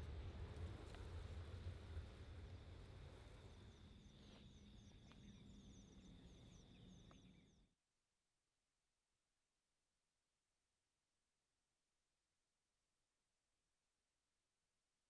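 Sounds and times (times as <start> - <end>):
jet engine low rumble: 0.0 - 6.7.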